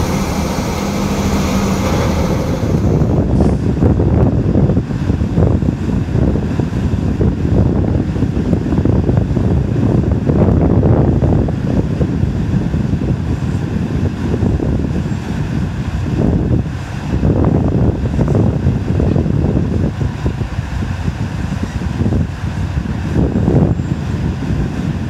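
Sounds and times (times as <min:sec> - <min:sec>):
heavy trucks passing: 0:00.0 - 0:05.2
wind buffeting microphone: 0:00.0 - 0:25.0.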